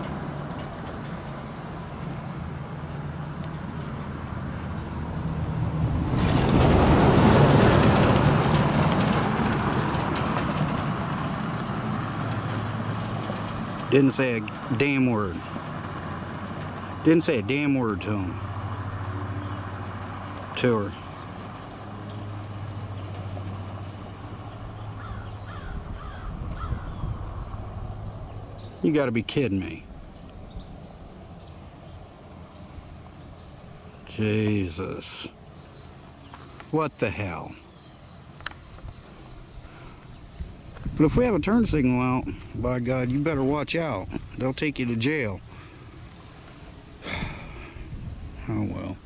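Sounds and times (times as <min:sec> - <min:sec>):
low engine hum: 0:00.0 - 0:49.0
vehicle passing with tyre noise: 0:00.0 - 0:49.0
bird calling: 0:24.6 - 0:27.3.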